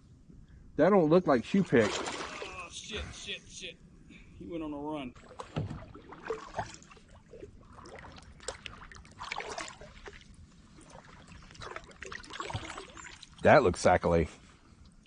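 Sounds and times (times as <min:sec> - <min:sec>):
water knocking and splashing: 0:01.7 - 0:02.5, 0:05.2 - 0:13.4
water trickling: 0:05.2 - 0:14.1.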